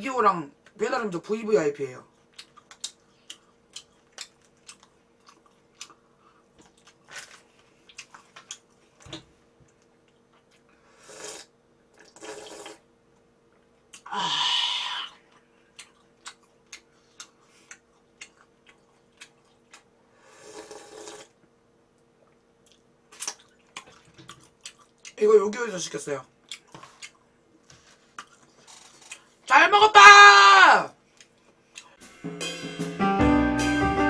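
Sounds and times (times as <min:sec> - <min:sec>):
person chewing noodles: 0:02.1 - 0:09.0, 0:09.6 - 0:12.8, 0:13.9 - 0:21.4, 0:22.1 - 0:25.2, 0:26.4 - 0:29.5, 0:31.0 - 0:32.0
wet mouth clicks: 0:02.3 - 0:06.0, 0:15.3 - 0:19.9, 0:28.2 - 0:29.3, 0:31.2 - 0:32.0
slurping from a bowl: 0:10.9 - 0:12.8, 0:20.2 - 0:21.4.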